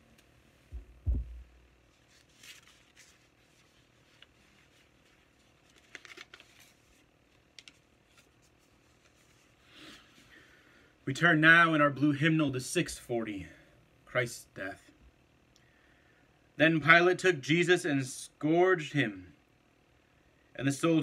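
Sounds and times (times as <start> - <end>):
low thumps: 0.7 - 1.6
pages being leafed through: 1.9 - 9.6.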